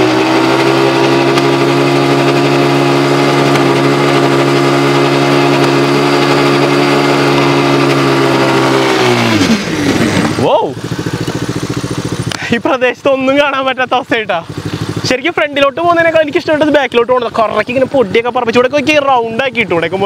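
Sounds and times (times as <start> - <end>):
atv engine running: 0.0 - 20.0.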